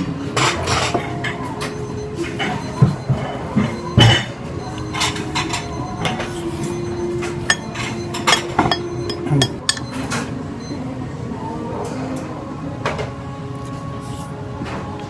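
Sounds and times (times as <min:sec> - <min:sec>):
steady background hum: 0:00.0 - 0:15.0
spoon clinking against a plate: 0:07.5 - 0:09.9.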